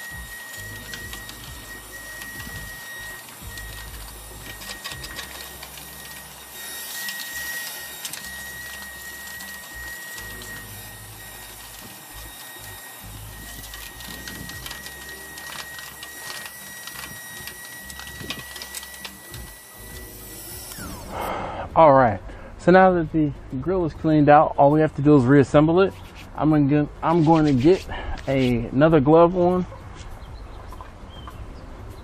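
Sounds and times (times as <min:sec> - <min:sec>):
vacuum cleaner whine: 0:00.0 - 0:21.8.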